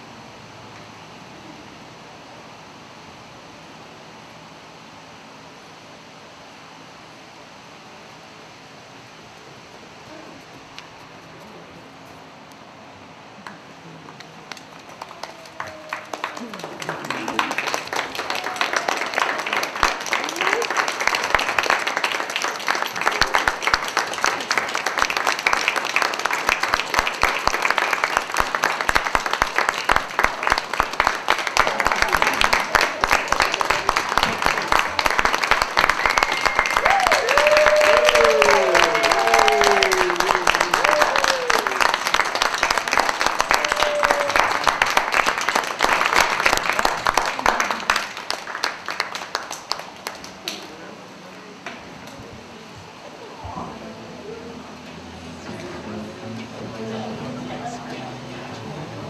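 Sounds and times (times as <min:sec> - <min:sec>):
audience applauding: 0:13.4 - 0:51.0.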